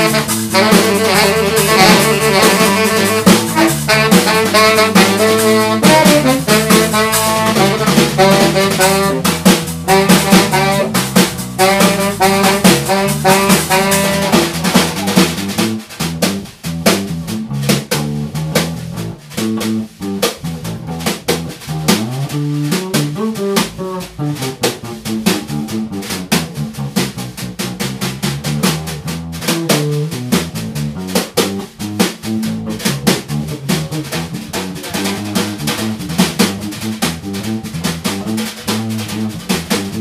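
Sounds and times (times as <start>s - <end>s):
saxophone phrases: 0.0s - 15.2s
drum kit: 0.0s - 40.0s
electric bass guitar: 0.0s - 40.0s.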